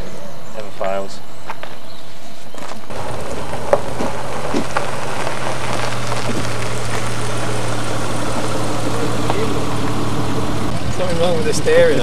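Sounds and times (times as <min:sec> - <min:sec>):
car engine idling: 0:02.9 - 0:12.0.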